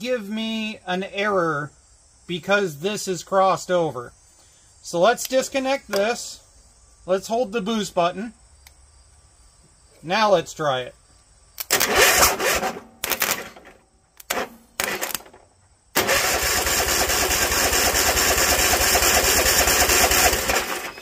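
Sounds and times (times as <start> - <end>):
electric starter cranking engine: 11.6 - 15.4, 16.0 - 21.0.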